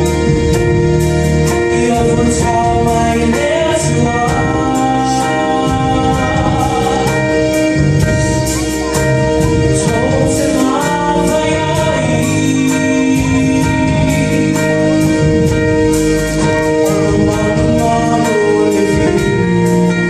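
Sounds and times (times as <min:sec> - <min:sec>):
drum and cymbal beat: 0:00.0 - 0:20.0
keyboards: 0:00.0 - 0:20.0
vocal group singing gospel: 0:09.7 - 0:15.3.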